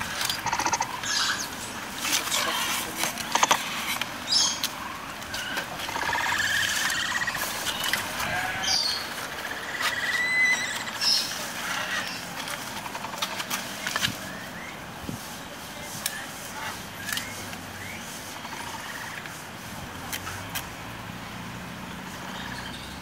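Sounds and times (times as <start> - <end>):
animals chewing and tearing leaves: 0.0 - 20.9.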